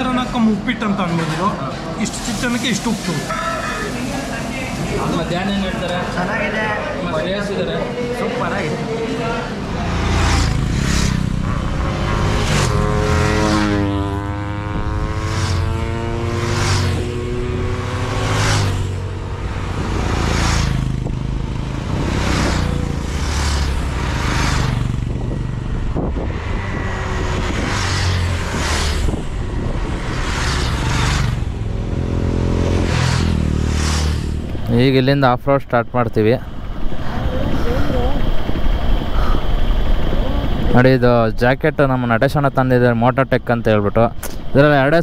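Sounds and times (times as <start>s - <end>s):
rushing noise: 0.0s - 7.1s, 8.0s - 45.0s
motorcycle engines rumbling: 0.0s - 45.0s
passing vehicle engine: 3.2s - 35.2s.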